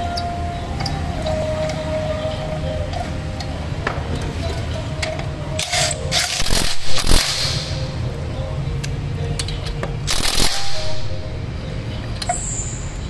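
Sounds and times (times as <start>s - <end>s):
metallic scraping and clinking: 4.2s - 7.9s.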